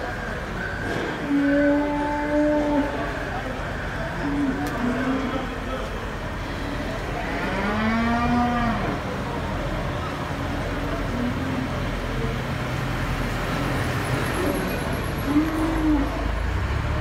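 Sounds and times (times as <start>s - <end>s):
steady background noise: 0.0s - 17.0s
cow mooing: 1.2s - 3.0s, 7.4s - 9.0s.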